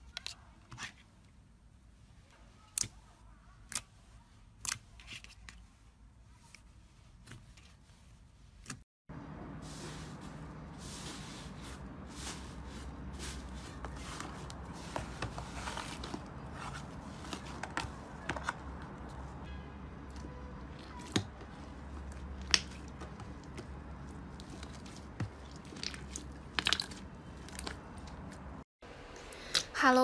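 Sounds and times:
slime squishing and crackling: 20.1s - 28.5s.

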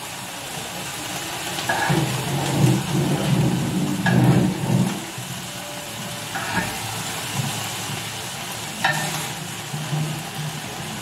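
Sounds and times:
meat sizzling on griddle: 0.0s - 11.0s
fork clinking on pan: 8.8s - 9.3s.

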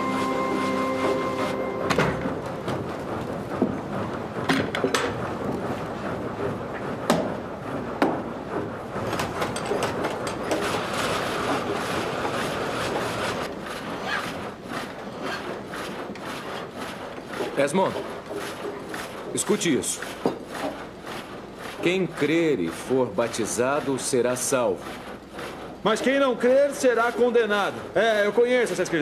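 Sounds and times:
sawmill machinery clattering: 0.0s - 29.0s
file rasping on saw teeth: 10.5s - 28.0s.

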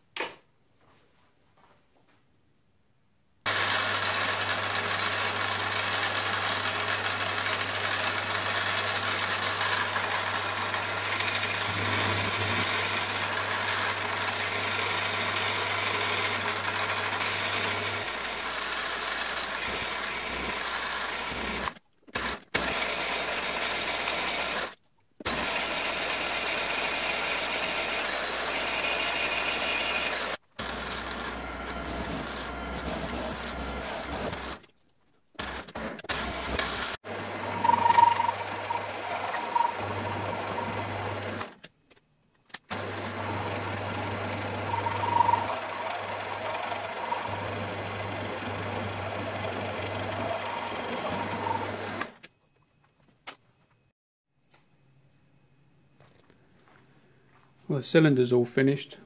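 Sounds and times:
milling machine motor hum: 3.5s - 21.6s, 37.1s - 41.4s, 42.7s - 52.1s
drill cutting metal: 3.5s - 24.7s, 25.3s - 34.5s, 36.1s - 41.2s, 43.0s - 52.0s.

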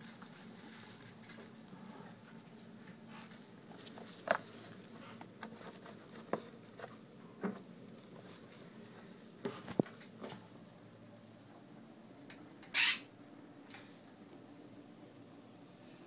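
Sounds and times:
faint steady hum: 0.0s - 16.0s
rustles and taps in paper bedding: 3.7s - 8.6s.

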